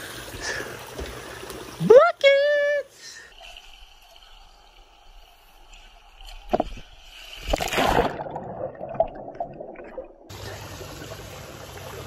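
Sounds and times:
pool water trickling: 0:00.0 - 0:12.0
underwater sloshing and bubbling: 0:03.0 - 0:12.0
loud splash: 0:07.4 - 0:09.9.

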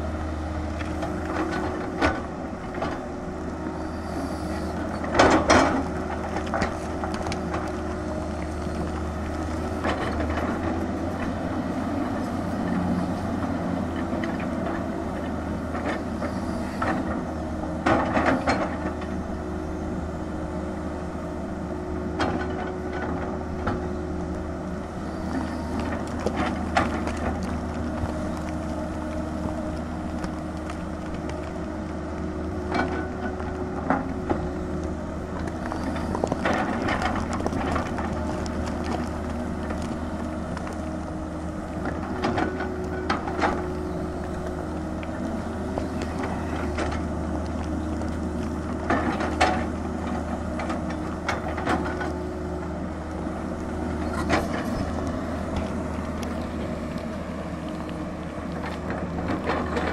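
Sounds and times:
excavator diesel engine: 0:00.0 - 0:59.9
bucket scraping rock and earth: 0:53.4 - 0:57.6.

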